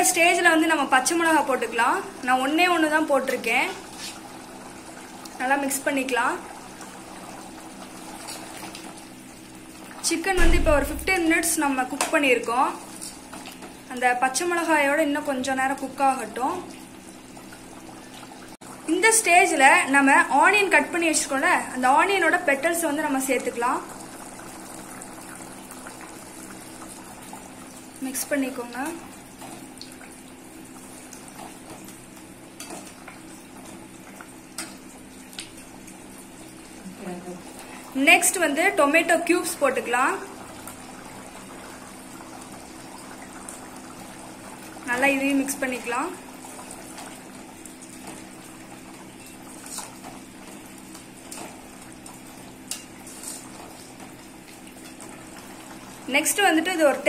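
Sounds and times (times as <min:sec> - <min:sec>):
low hum: 0:10.4 - 0:11.6.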